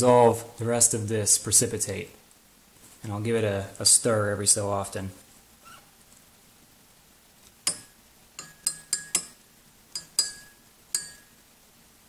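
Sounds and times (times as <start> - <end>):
glass rod clinking in flask: 10.0 - 11.3.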